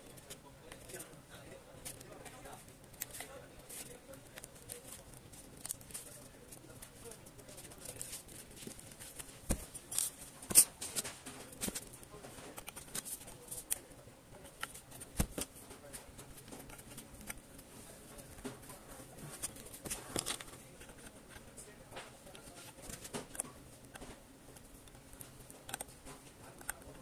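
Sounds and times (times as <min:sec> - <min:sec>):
plastic parts clicking: 0:22.3 - 0:27.0.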